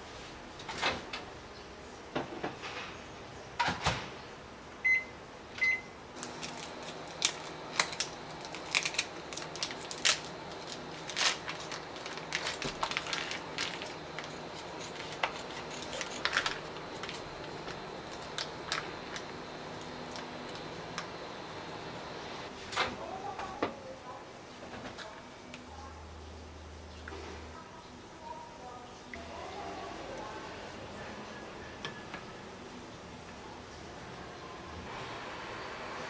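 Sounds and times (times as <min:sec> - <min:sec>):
keypad beeps: 0:04.8 - 0:05.9
microwave oven humming: 0:04.8 - 0:22.5, 0:34.9 - 0:36.0
plastic wrap crackling: 0:06.2 - 0:21.2.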